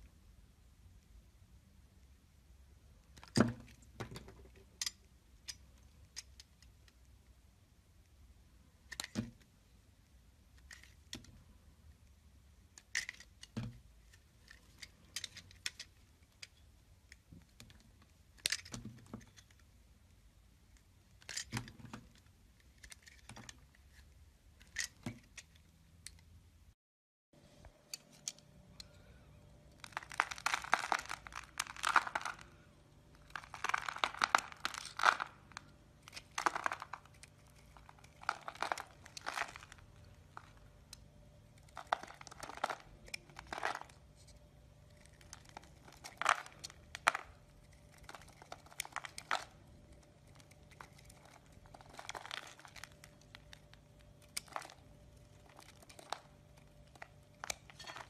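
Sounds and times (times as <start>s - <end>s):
blade shaving soap crackling: 29.7s - 44.2s, 44.8s - 58.0s.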